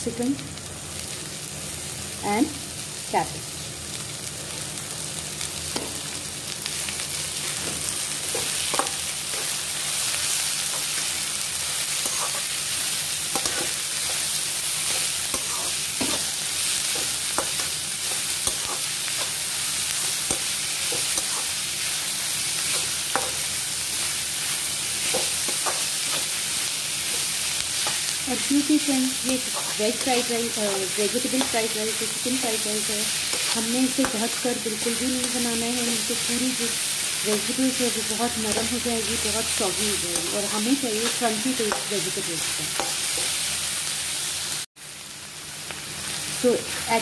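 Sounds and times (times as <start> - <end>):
vegetables sizzling in hot oil: 0.0 - 47.0
spatula scraping and tapping pan: 7.6 - 9.5, 13.3 - 16.3, 16.9 - 19.4, 22.7 - 23.4, 42.7 - 43.4.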